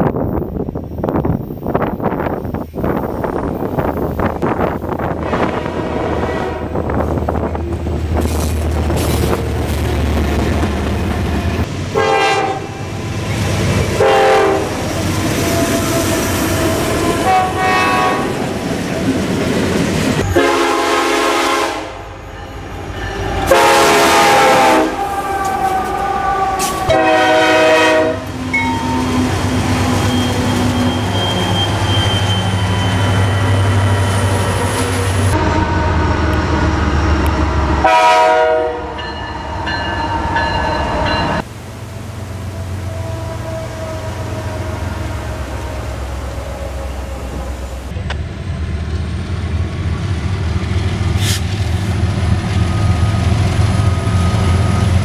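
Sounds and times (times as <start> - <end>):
freight train rumbling past: 0.0 - 55.0
locomotive air horn blasts: 5.2 - 7.0, 11.9 - 13.0, 14.0 - 18.5, 20.2 - 22.2, 23.2 - 33.4, 35.3 - 36.4, 37.8 - 39.1, 42.7 - 47.9.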